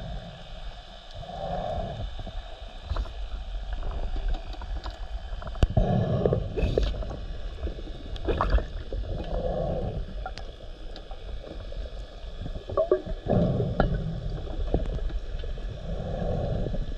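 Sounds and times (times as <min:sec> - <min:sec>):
regulator inhalation hiss: 0:00.0 - 0:03.3
steady low rumble: 0:00.0 - 0:16.9
bubbling underwater exhalation: 0:08.2 - 0:10.5, 0:12.4 - 0:15.1.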